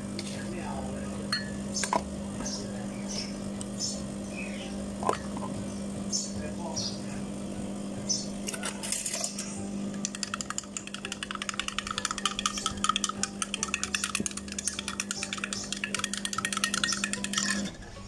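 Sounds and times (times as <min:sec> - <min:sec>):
spoon clinking in a glass: 0:01.3 - 0:01.6, 0:08.6 - 0:17.7.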